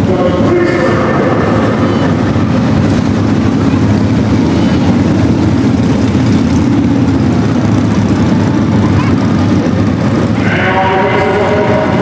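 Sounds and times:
motorcycle engines at low speed: 0:00.0 - 0:12.0.

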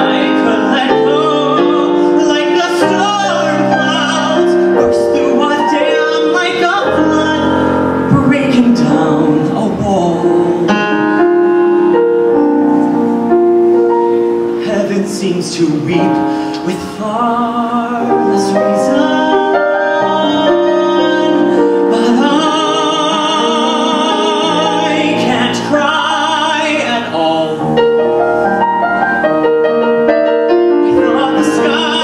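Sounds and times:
man singing a slow ballad: 0:00.0 - 0:11.0, 0:14.6 - 0:28.0, 0:30.8 - 0:32.0
piano accompaniment: 0:00.0 - 0:32.0.

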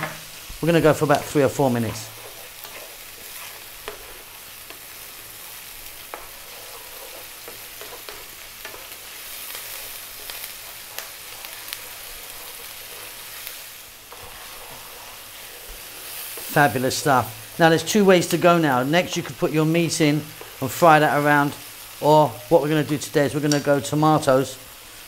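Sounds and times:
wooden spoon scraping a pan: 0:00.0 - 0:23.4
onion sizzling in a pan: 0:00.0 - 0:25.0.

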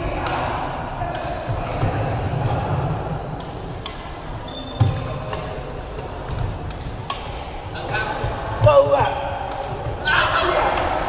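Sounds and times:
murmur of the hall: 0:00.0 - 0:11.0
rackets striking shuttlecock: 0:00.1 - 0:10.0
shoes squeaking on court floor: 0:04.3 - 0:05.6, 0:07.8 - 0:09.5.

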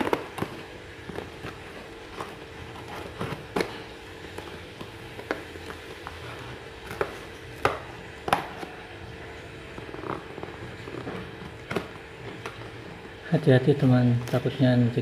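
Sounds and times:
scissors cutting packing tape: 0:00.0 - 0:06.2
faint steady hum: 0:00.0 - 0:15.0.

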